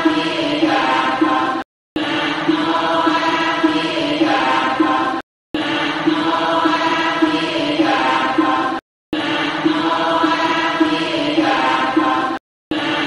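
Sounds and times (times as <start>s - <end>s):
group of voices chanting: 0.0s - 13.0s.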